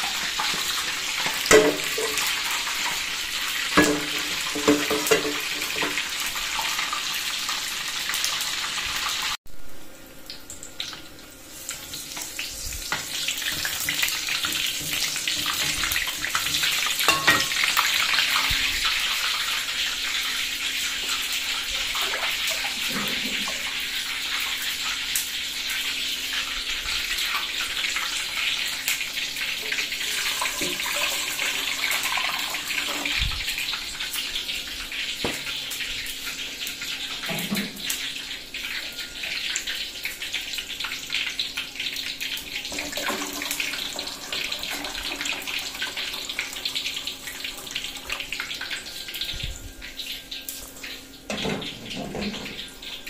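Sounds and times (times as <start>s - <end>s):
water boiling hard: 0.0s - 9.4s, 11.4s - 38.9s, 39.9s - 50.8s
metal pots clanking: 0.4s - 2.5s, 3.7s - 6.1s, 12.9s - 18.6s, 22.6s - 23.7s, 29.7s - 33.2s, 51.3s - 53.0s.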